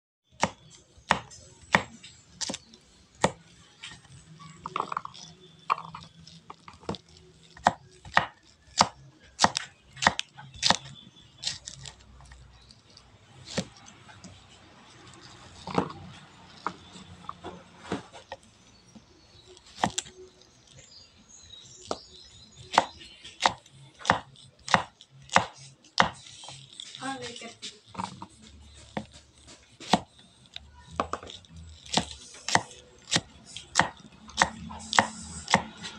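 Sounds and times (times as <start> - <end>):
knife chopping on wooden board: 0.4 - 2.6, 3.2 - 3.4, 4.6 - 12.0, 13.4 - 14.4, 19.6 - 20.2, 22.6 - 27.0, 27.6 - 35.9.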